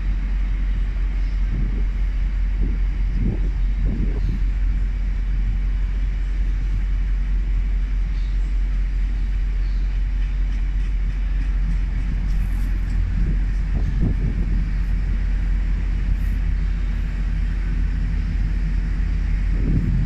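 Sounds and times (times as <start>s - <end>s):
freight train wheels rumbling: 0.0s - 20.0s.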